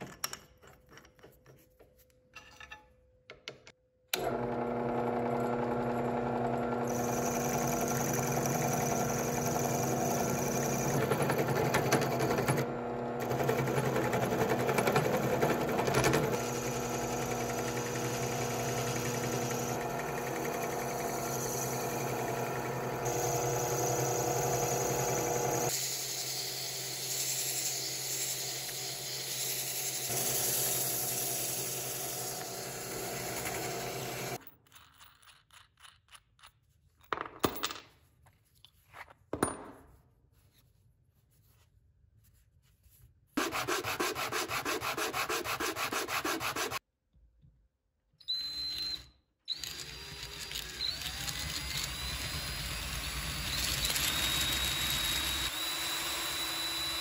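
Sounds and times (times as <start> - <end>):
power tool motor humming: 4.2 - 34.4, 49.5 - 57.0.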